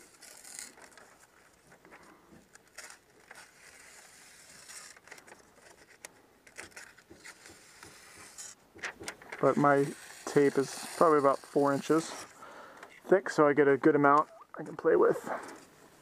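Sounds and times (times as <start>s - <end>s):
utility knife cutting house wrap: 0.0s - 1.4s, 6.5s - 12.4s
crinkling of plastic sheet: 0.0s - 7.4s.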